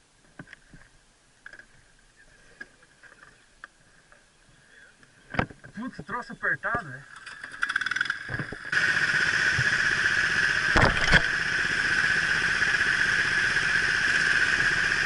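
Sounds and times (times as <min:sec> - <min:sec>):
kart engines running: 0:07.0 - 0:15.0.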